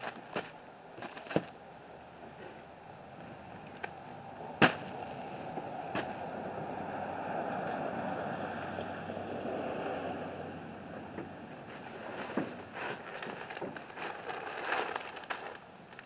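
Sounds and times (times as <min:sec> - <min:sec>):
bale landing with a thump: 0:04.6 - 0:05.0.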